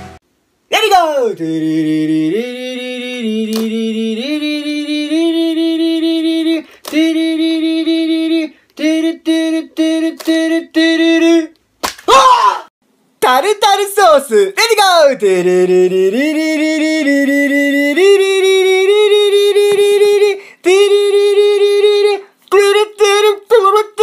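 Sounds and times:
man humming: 0.8 - 11.6, 15.2 - 23.4.

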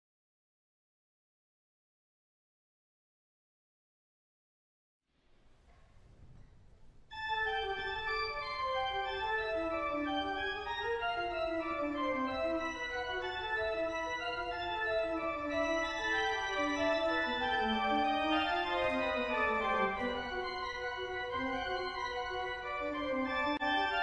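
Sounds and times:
pipe organ playing: 7.1 - 24.0.

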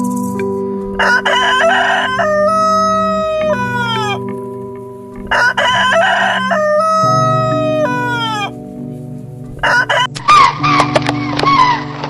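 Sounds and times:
background music with low notes: 0.0 - 12.0
rooster crowing: 1.0 - 4.3, 5.3 - 8.6, 9.6 - 10.8.

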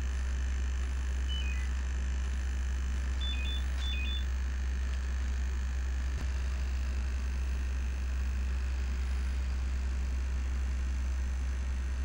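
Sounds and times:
steady low hum: 0.0 - 12.0
short electronic beeps: 1.3 - 1.7, 3.2 - 4.3.

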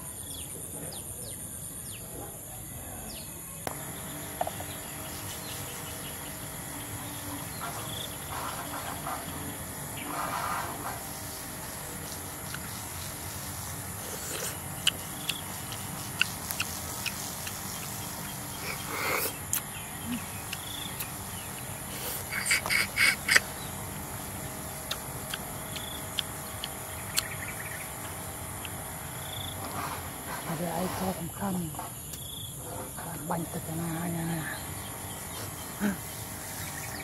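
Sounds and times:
high insect drone: 3.2 - 37.0
slurping snail from shell: 12.0 - 19.6, 21.8 - 23.5
wet mouth clicks: 14.1 - 18.0, 18.7 - 21.2, 22.0 - 23.5, 24.8 - 27.3.

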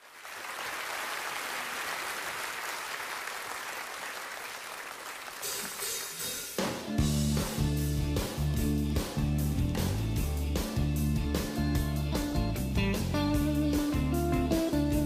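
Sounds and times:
crowd applauding: 0.0 - 6.9
music: 5.4 - 15.0.

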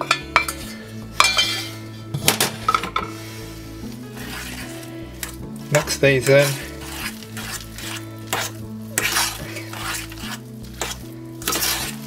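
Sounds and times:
fork clinking against pan: 1.2 - 1.7
fork scraping mashed potato in pan: 3.1 - 12.0.

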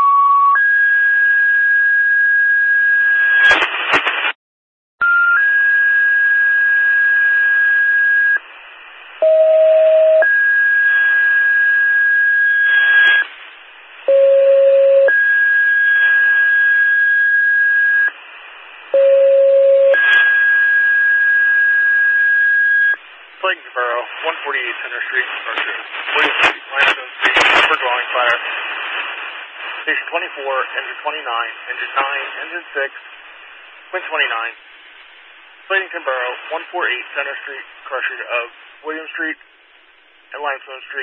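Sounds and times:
radio hiss and static crackles: 3.4 - 4.4, 12.7 - 14.1, 18.1 - 19.0, 20.0 - 20.4, 23.0 - 41.0.

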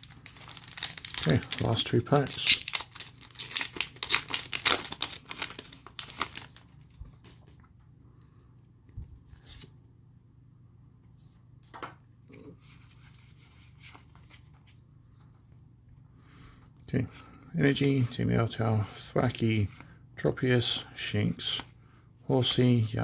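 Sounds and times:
foil wrapper crinkling and tearing: 0.0 - 7.0
cards rustling and clicking: 0.0 - 7.7.

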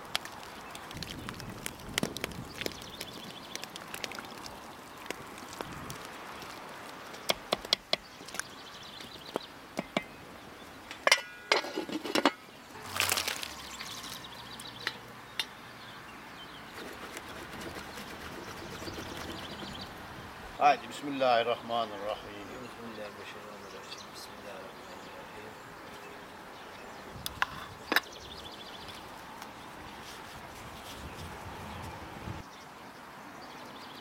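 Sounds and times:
metal lid clattering: 11.1 - 12.4
wooden spoon stirring in pot: 16.8 - 19.8.

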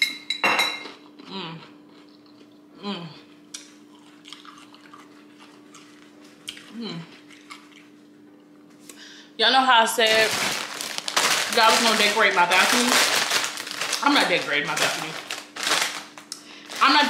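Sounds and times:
steady low hum: 1.1 - 17.0
person humming while eating: 1.2 - 1.9, 2.7 - 3.4, 6.6 - 7.3.

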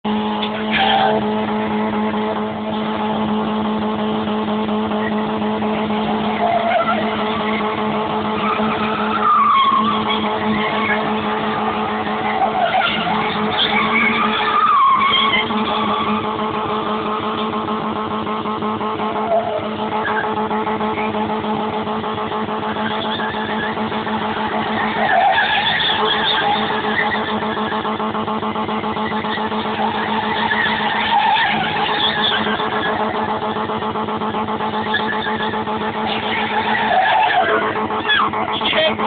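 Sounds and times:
car engine at high revs: 0.0 - 39.0
tyres squealing on concrete: 0.4 - 2.7, 5.8 - 17.5, 19.1 - 21.2, 22.6 - 27.8, 29.0 - 33.3, 34.8 - 39.0.

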